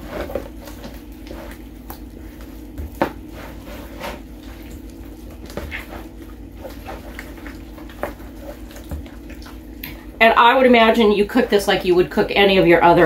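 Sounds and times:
wet squelches of raw chicken: 0.0 - 10.2
steady low hum: 0.0 - 13.0.

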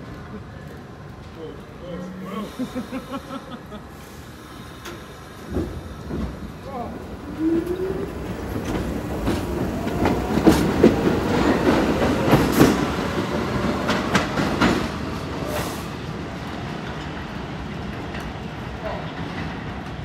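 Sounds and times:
subway train rumble: 0.0 - 20.0
wheels clicking over rail joints: 4.7 - 20.0.

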